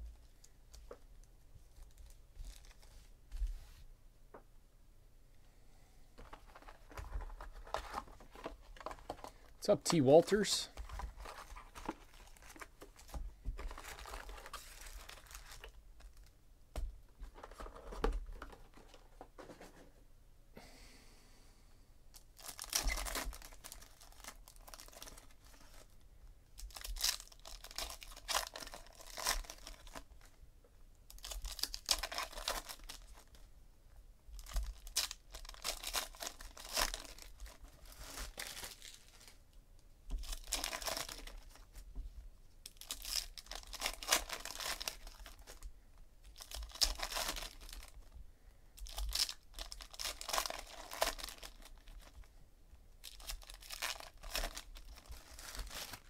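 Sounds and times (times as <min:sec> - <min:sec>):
foil wrappers tearing and crinkling: 0:10.9 - 0:16.2, 0:22.4 - 0:25.9, 0:26.6 - 0:30.1, 0:31.1 - 0:33.4, 0:34.4 - 0:39.4, 0:40.1 - 0:41.6, 0:42.6 - 0:45.6, 0:46.3 - 0:48.0, 0:48.8 - 0:52.2, 0:53.0 - 0:56.0.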